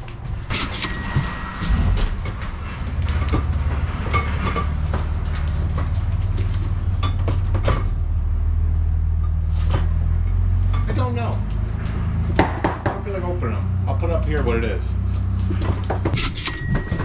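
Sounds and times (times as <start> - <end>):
steady low drone: 0.0 - 12.4.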